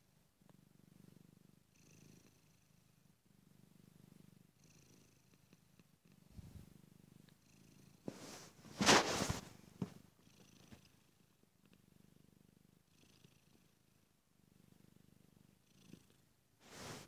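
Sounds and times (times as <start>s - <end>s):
cat purring: 0.0s - 17.0s
rustling: 8.1s - 10.0s, 16.6s - 17.0s.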